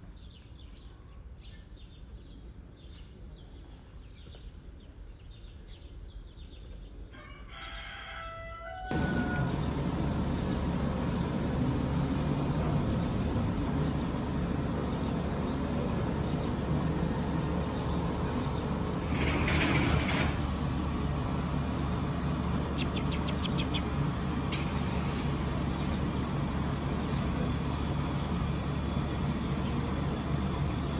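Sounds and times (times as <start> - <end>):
vehicle engine rumbling: 8.9 - 30.9.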